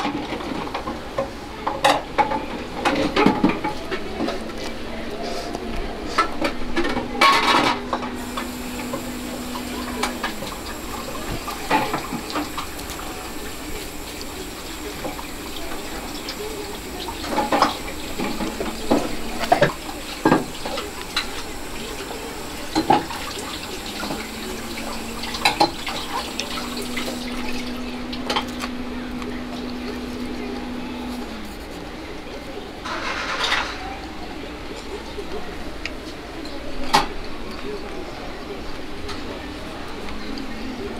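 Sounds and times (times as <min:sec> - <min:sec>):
low steady hum: 0:06.4 - 0:31.7
running tap water: 0:07.3 - 0:31.4.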